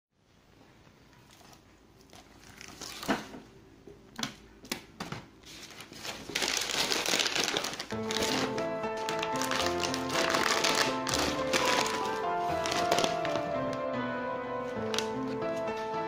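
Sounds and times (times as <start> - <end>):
plastic packaging crinkling: 1.3 - 3.4, 5.4 - 13.8
knocks of items packed: 6.2 - 13.8
music: 7.4 - 16.0.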